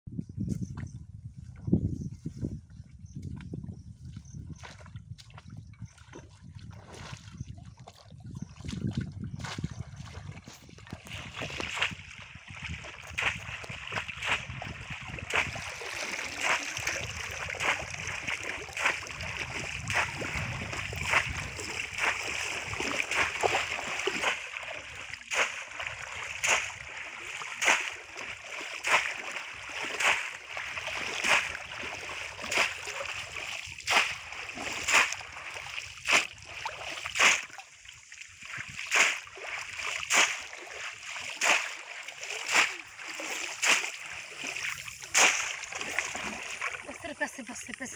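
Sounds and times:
splashing in shallow water: 3.3s - 47.9s
fish trap plunging into water: 38.9s - 46.9s.

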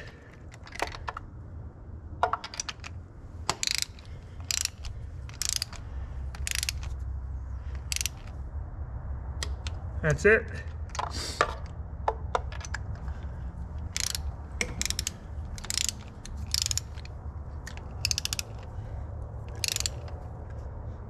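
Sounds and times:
ratchet wrench clicking: 0.0s - 1.2s, 2.2s - 8.4s, 9.4s - 9.8s, 13.8s - 20.7s.

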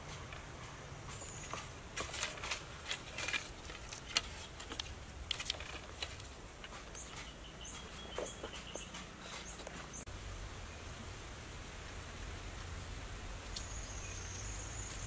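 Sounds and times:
wooden slats clicking and rustling: 0.0s - 10.0s
small bird chirping: 6.8s - 10.1s, 13.5s - 15.0s.

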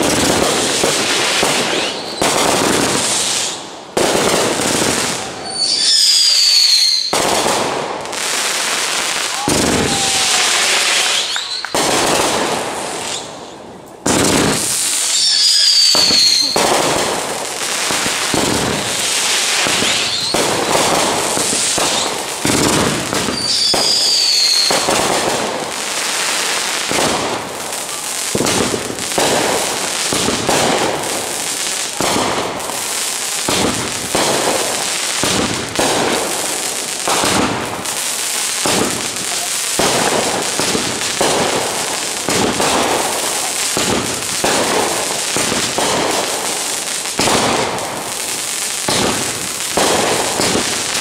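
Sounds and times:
fireworks bangs: 0.0s - 51.0s
fireworks crackling: 0.0s - 51.0s
falling firework whistles: 1.2s - 3.6s, 5.0s - 7.5s, 9.0s - 12.3s, 12.9s - 13.5s, 14.1s - 17.2s, 17.8s - 25.2s.

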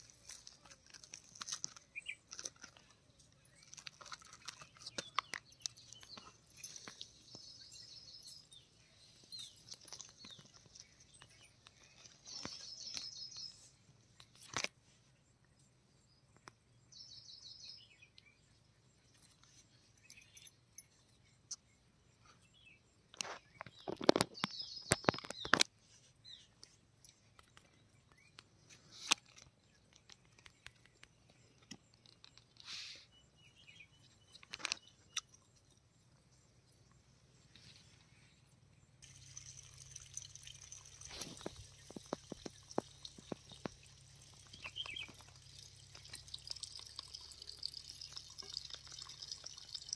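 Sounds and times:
crunching fried fish: 0.0s - 6.2s
small birds chirping: 0.0s - 49.9s.

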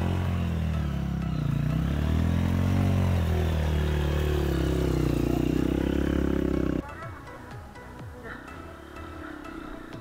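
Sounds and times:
motorcycle engine revving: 0.0s - 6.8s.

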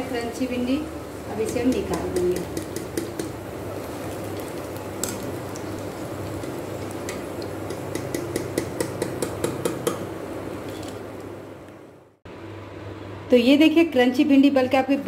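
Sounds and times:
oil sizzling in frying pan: 0.0s - 11.4s.

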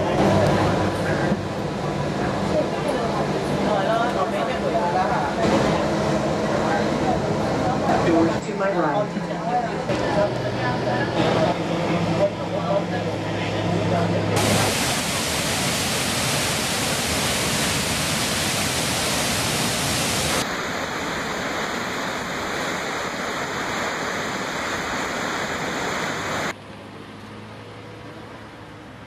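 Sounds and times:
waterfall rushing: 14.4s - 26.5s.

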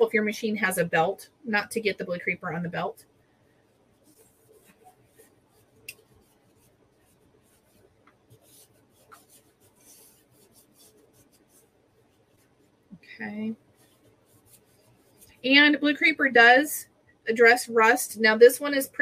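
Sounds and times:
cloth rubbing painted metal: 2.5s - 15.9s.

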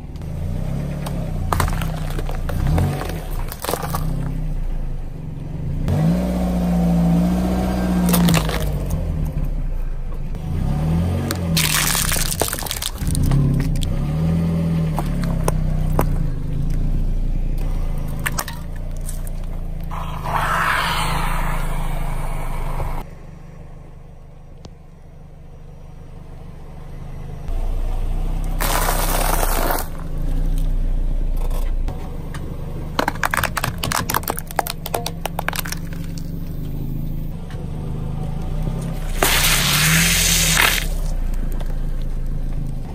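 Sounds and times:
car engine humming: 0.0s - 42.9s
tyre crushing objects: 1.5s - 4.4s, 11.6s - 14.0s, 28.6s - 30.1s, 39.1s - 41.8s
sharp plastic cracks: 33.0s - 36.3s.

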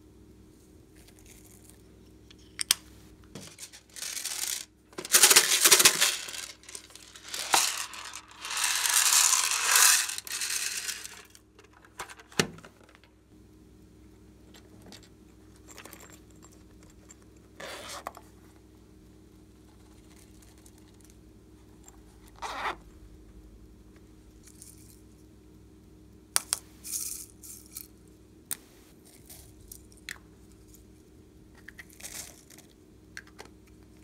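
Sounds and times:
plastic beads rattling in a box: 3.4s - 11.4s, 26.8s - 27.9s, 31.8s - 32.7s.

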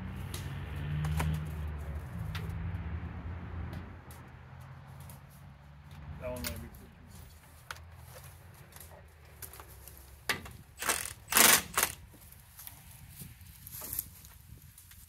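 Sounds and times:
impact wrench hammering: 10.8s - 12.0s.

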